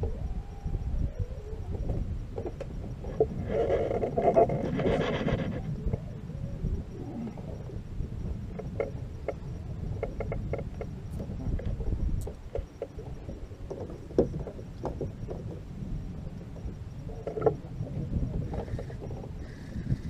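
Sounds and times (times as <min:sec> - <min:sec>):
water around a boat: 0:00.0 - 0:20.0
wind: 0:00.0 - 0:20.0.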